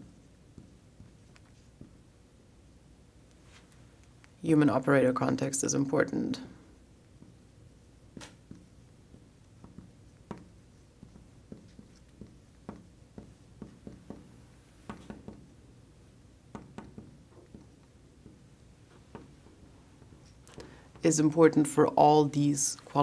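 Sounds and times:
marker tapping and squeaking on glass: 0:08.1 - 0:15.5, 0:16.5 - 0:19.4.

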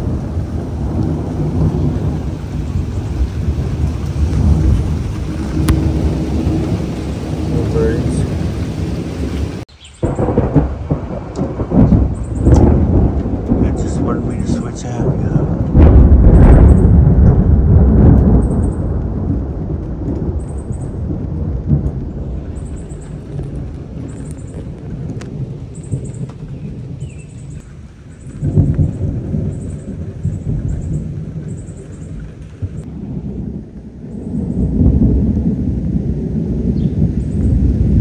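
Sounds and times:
rolling thunder rumble: 0:00.0 - 0:38.0.

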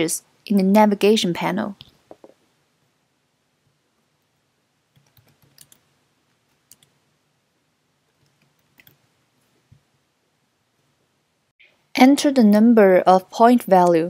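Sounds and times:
computer keyboard keystrokes: 0:05.0 - 0:05.8, 0:06.7 - 0:06.9.

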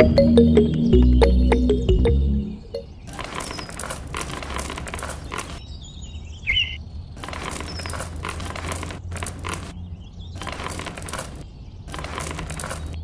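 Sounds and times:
pebbles clattering onto sand: 0:03.1 - 0:05.6, 0:07.2 - 0:09.8, 0:10.4 - 0:13.0.

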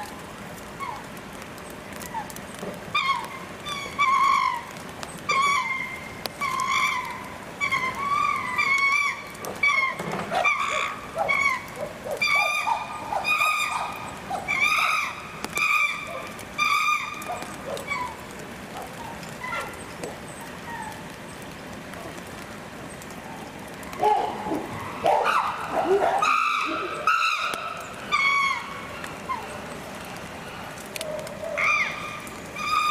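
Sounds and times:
chimpanzees screaming: 0:02.9 - 0:19.8, 0:23.9 - 0:29.6, 0:31.1 - 0:32.9.

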